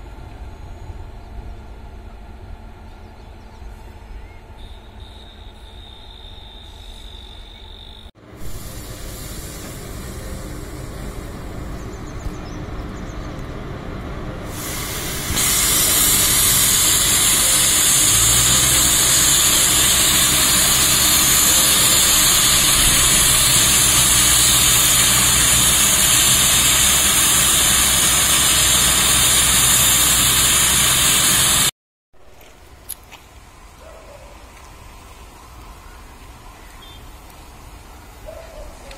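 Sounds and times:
locomotive blowers hissing: 8.2s - 12.8s, 14.3s - 31.7s.

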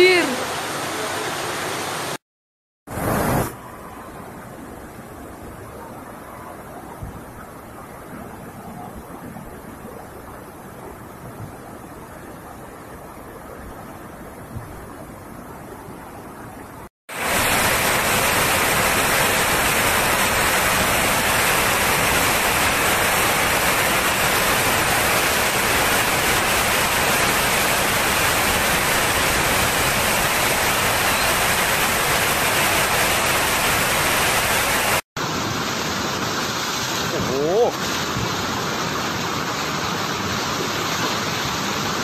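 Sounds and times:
flood water rushing: 0.0s - 2.2s, 17.1s - 42.0s.

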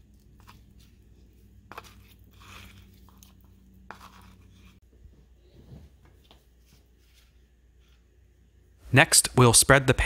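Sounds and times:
metal bowl scratchy handling: 0.1s - 4.8s.

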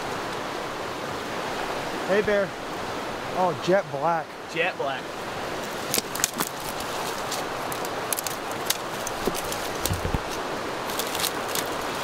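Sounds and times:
stream running: 0.0s - 12.0s
clicks and rustles of brush: 5.9s - 12.0s.

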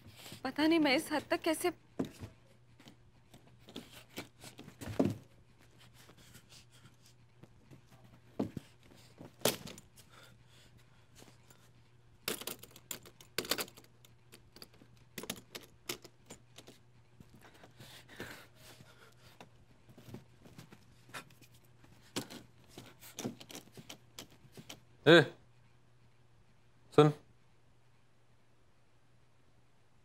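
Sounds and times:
faint low hum: 0.0s - 30.0s
small objects clicking and rustling: 12.2s - 16.8s.

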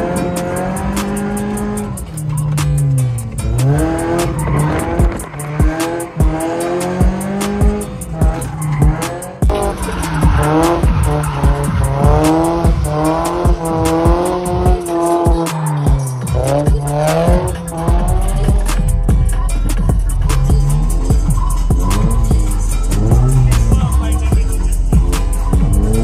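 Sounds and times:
car engine revving: 0.0s - 26.0s
music with steady beat and bass: 0.0s - 26.0s
tyres squealing: 0.3s - 16.9s.

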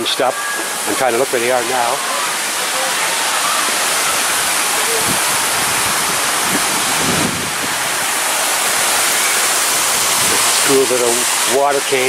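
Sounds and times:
splashing water rushing: 0.0s - 12.0s.

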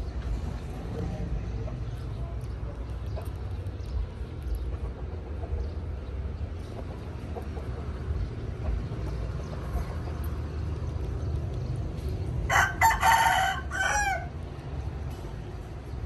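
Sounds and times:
rooster crowing: 12.5s - 14.3s.

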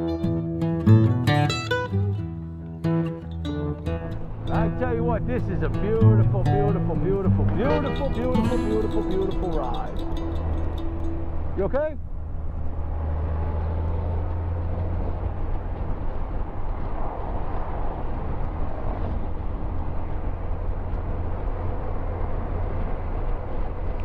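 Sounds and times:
motorcycle engine droning: 3.7s - 16.7s
wind on microphone: 3.8s - 24.0s.

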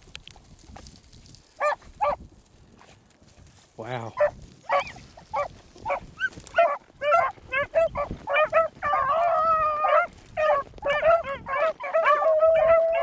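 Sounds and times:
beagles baying: 1.6s - 2.2s, 4.1s - 13.0s
hounds barking: 1.6s - 2.2s, 4.1s - 13.0s.

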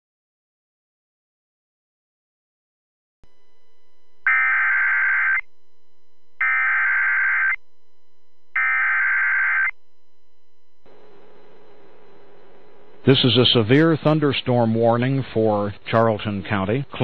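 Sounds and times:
faint hum: 3.2s - 17.0s
buzzing digital data tones: 4.3s - 5.5s, 6.4s - 7.6s, 8.6s - 9.7s.

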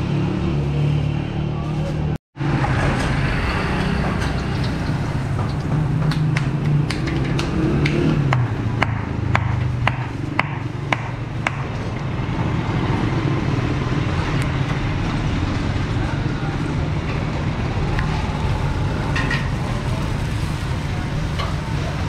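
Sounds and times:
street traffic: 0.0s - 22.0s
sharp taps: 5.4s - 11.7s.

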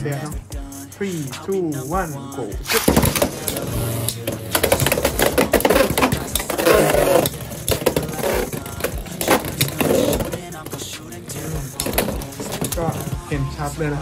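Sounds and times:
spinning tops clashing in plastic arena: 2.7s - 13.1s.

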